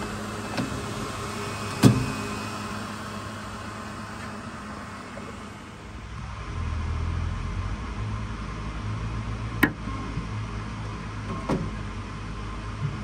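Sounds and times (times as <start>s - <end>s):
printer low hum: 0.0s - 6.3s.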